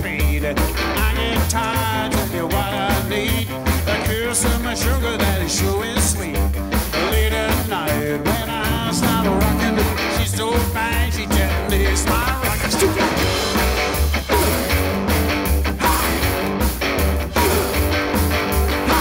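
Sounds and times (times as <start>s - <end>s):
rock and roll music: 0.0s - 19.0s.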